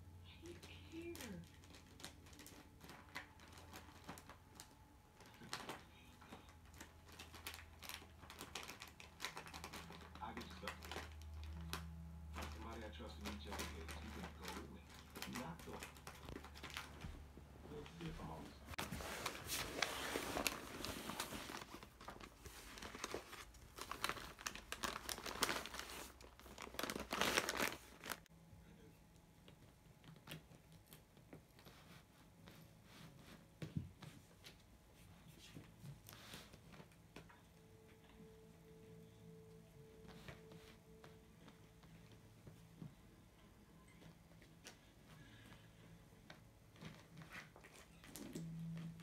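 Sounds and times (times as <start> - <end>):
cat rustling in a bag: 0.5 - 11.7, 12.3 - 17.2, 17.8 - 28.3
faint steady hum: 28.2 - 49.0.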